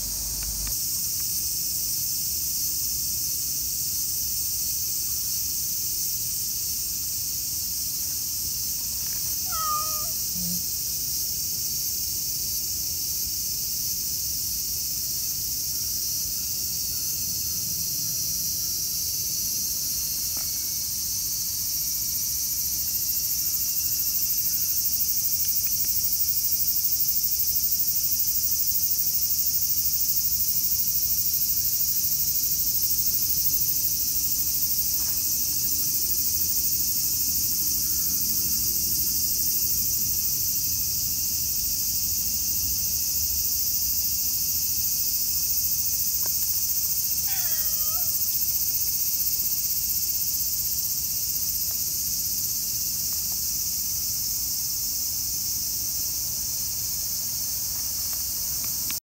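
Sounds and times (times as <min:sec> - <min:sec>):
insects shrilling: 0:08.8 - 0:10.8, 0:46.4 - 0:48.8.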